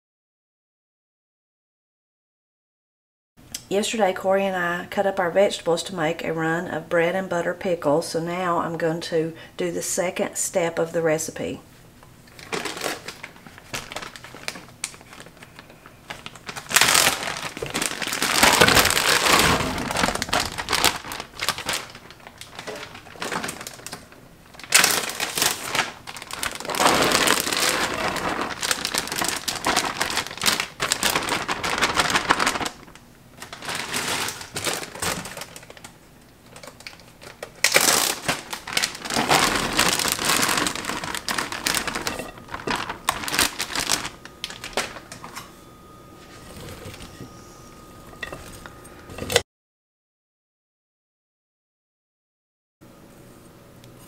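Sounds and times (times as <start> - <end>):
plastic bags crinkling: 12.2 - 49.4.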